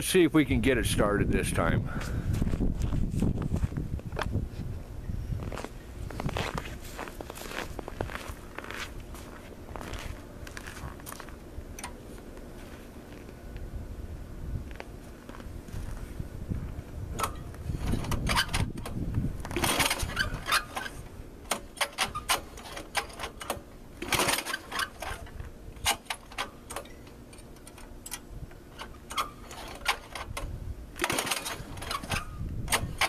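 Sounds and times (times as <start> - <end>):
recoil starter pulls clicking: 17.1 - 33.0.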